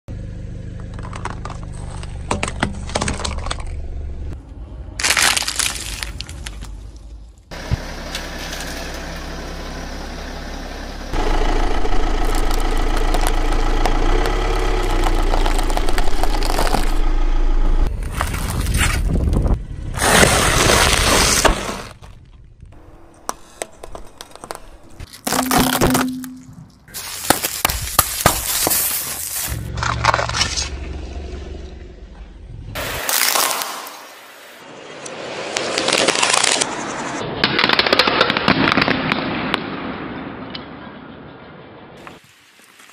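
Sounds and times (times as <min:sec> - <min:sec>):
car tyre crushing objects: 0:00.6 - 0:04.2, 0:05.0 - 0:06.8, 0:11.1 - 0:30.9, 0:32.8 - 0:34.3
low steady rumble: 0:06.5 - 0:20.4, 0:22.2 - 0:28.0
dry noodles crunching: 0:11.9 - 0:17.0.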